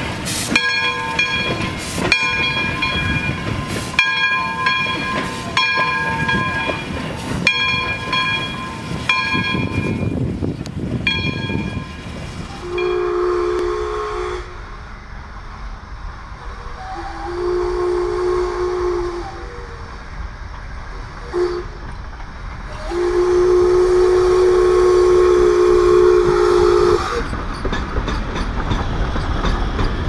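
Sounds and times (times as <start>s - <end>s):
locomotive bell ringing: 0.0s - 10.3s, 11.0s - 13.3s
steam locomotive engine: 0.0s - 30.0s
steam whistle blasts: 12.6s - 14.8s, 16.6s - 19.8s, 21.2s - 21.8s, 22.7s - 27.3s.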